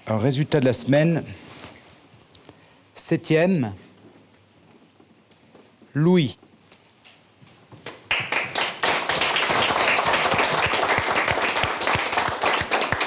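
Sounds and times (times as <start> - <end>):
group of people clapping: 7.8 - 13.0.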